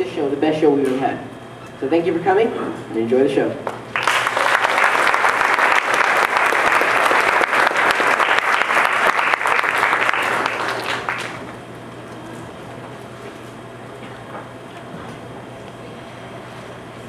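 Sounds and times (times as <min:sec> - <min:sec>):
audience applauding: 0:03.9 - 0:11.6.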